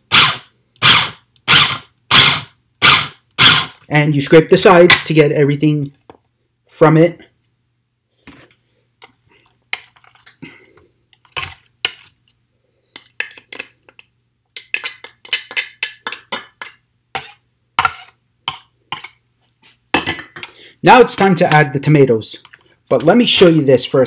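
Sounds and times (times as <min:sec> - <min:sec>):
spatula scraping glass bowl: 0:17.2 - 0:19.2.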